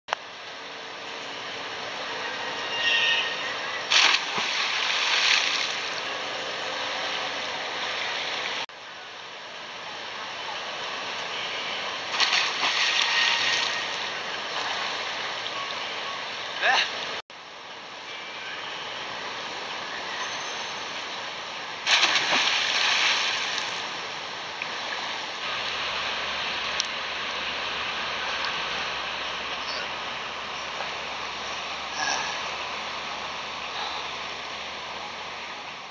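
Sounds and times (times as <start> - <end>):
splash into pool: 3.9 - 5.8, 12.1 - 13.9, 21.9 - 23.8
churning water settling: 3.9 - 6.0, 12.1 - 15.2, 21.8 - 24.0.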